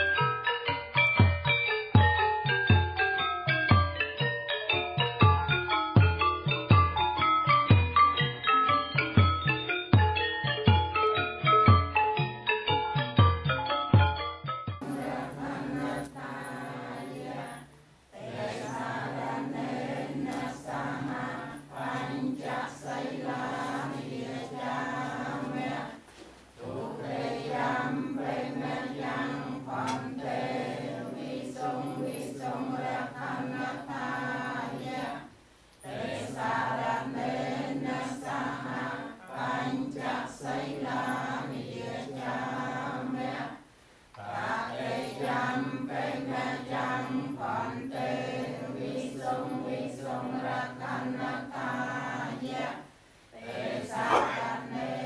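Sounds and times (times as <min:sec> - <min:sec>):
group chanting prayers in unison: 0:14.8 - 0:55.0.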